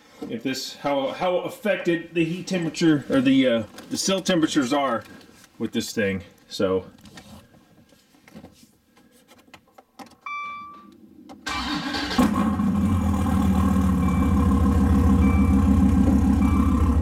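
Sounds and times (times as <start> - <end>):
short beep: 10.3 - 10.9, 14.0 - 14.5, 15.2 - 15.7, 16.4 - 16.9
car engine starting and idling: 11.4 - 17.0.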